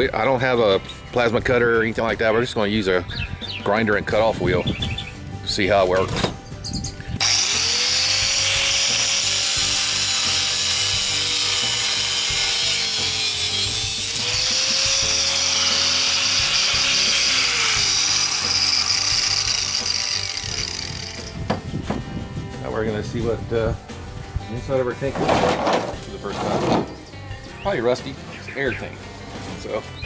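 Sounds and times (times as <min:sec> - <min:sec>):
angle grinder cutting steel: 0:07.2 - 0:21.4.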